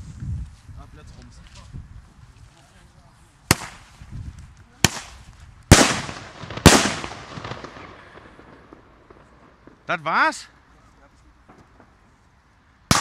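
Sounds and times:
firecracker bangs with echo: 3.5s - 3.9s, 4.8s - 9.9s.

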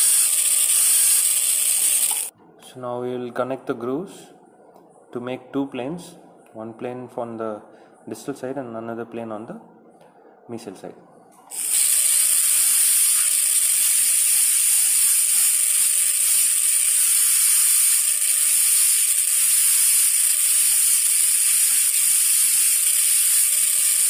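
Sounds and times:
dental drill whine: 0.0s - 2.3s, 11.5s - 24.0s.

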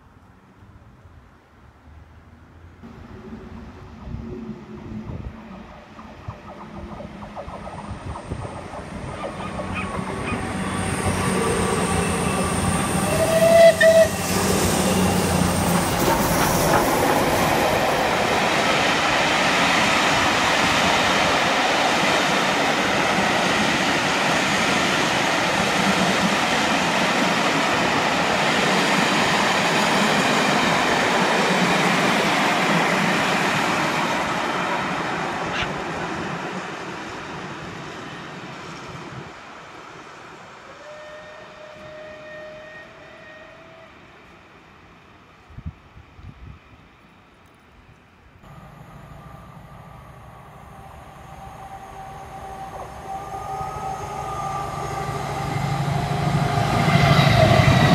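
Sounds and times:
train wheels rumbling: 2.9s - 38.0s
train horn blast: 13.0s - 14.8s, 40.7s - 44.2s.

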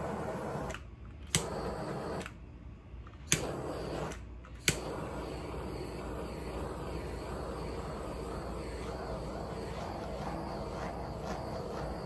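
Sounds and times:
torch flame hissing: 0.0s - 2.4s, 3.2s - 12.0s
torch ignition click: 0.0s - 2.4s, 3.1s - 12.0s.

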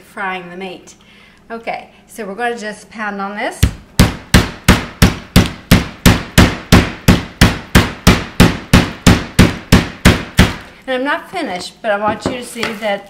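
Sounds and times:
meat mallet pounding: 3.6s - 10.7s.

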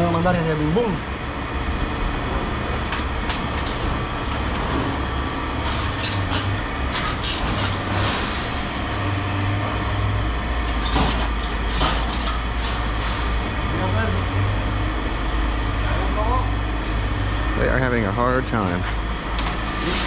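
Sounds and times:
low engine rumble: 0.0s - 20.0s.

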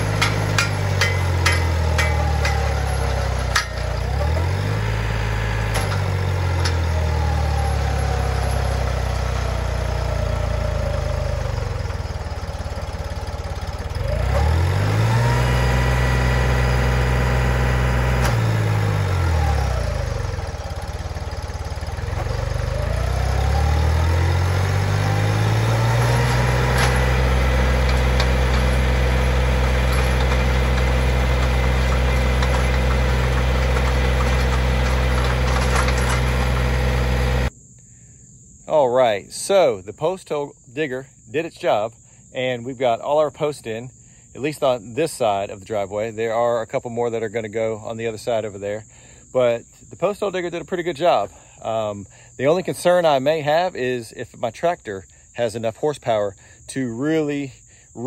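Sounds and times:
tractor diesel engine labouring: 0.0s - 37.5s.

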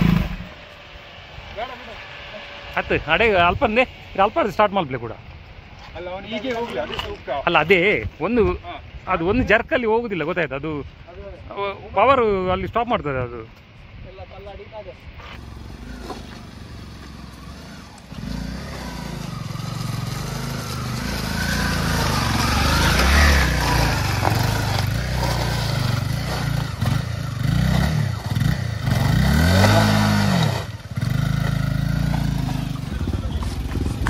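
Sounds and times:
motorcycle engine revving: 0.0s - 4.3s, 15.2s - 34.0s.

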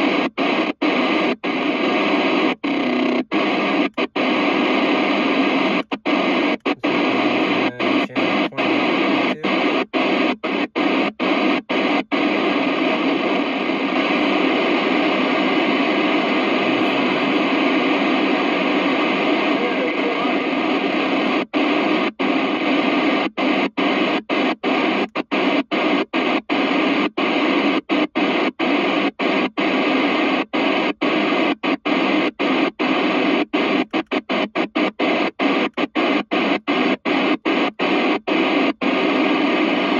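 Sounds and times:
radio static hiss: 0.0s - 39.9s.

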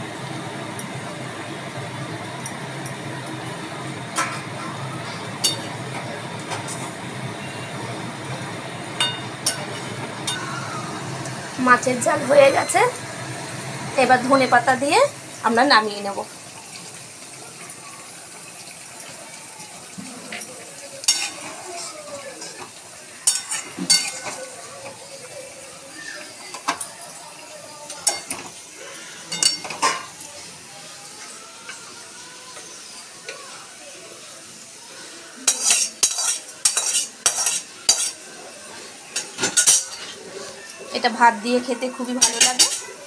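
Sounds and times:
metal spatula scraping a wok: 35.4s - 38.2s
metal spoon stirring curry: 35.5s - 38.2s
spoon clinking on pan: 35.5s - 38.2s.

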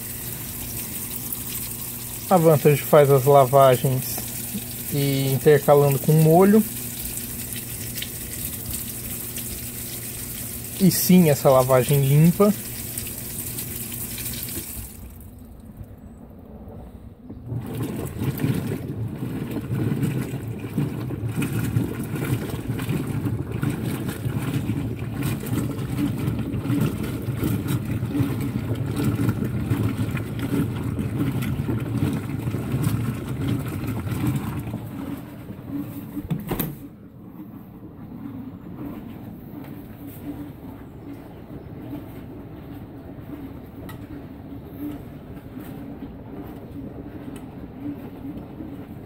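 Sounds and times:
water spraying into washer: 0.0s - 15.5s, 17.4s - 37.4s
washing machine chugging: 0.0s - 16.0s, 17.2s - 49.0s
washing machine click: 36.3s - 36.9s.

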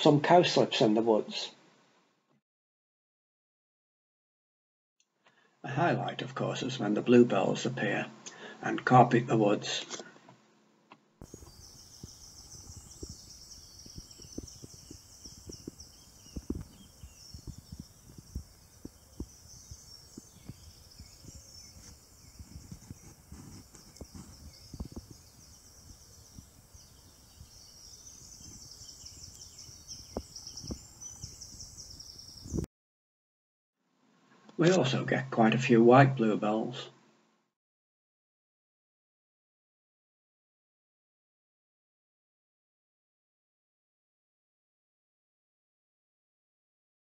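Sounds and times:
birds singing faintly: 11.2s - 32.7s
thumps on microphone: 13.8s - 25.5s, 30.1s - 31.6s.

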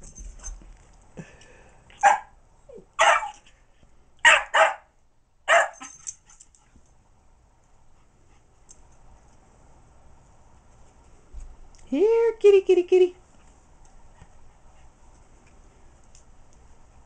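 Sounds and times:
puppy barking: 2.0s - 2.3s, 3.0s - 3.4s, 4.2s - 4.9s, 5.5s - 6.0s.

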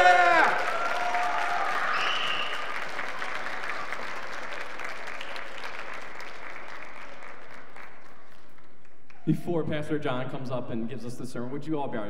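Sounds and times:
congregation applauding: 0.0s - 9.3s.

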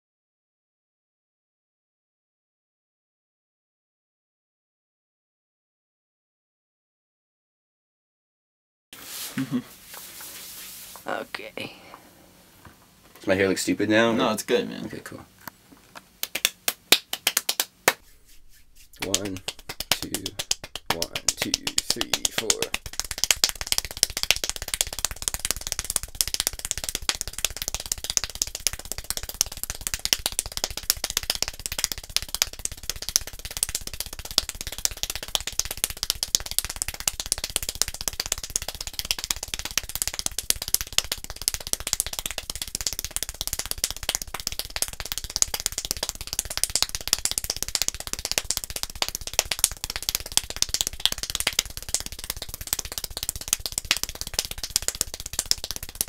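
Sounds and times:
fast hand clapping: 16.2s - 18.1s, 18.8s - 56.0s.

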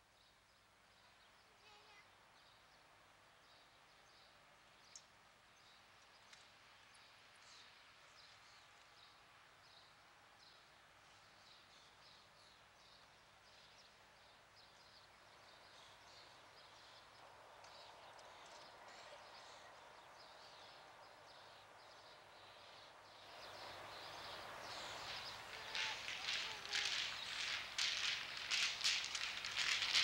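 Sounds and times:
soft hiss: 22.3s - 30.0s.

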